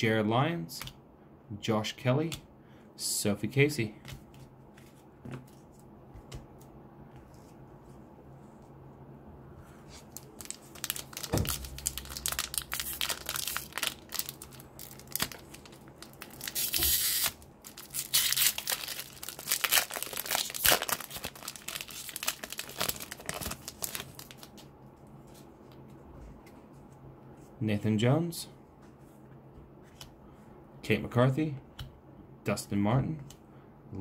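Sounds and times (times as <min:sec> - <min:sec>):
foil wrapper crinkling: 0:10.0 - 0:24.7
foil pack tearing: 0:10.1 - 0:24.5.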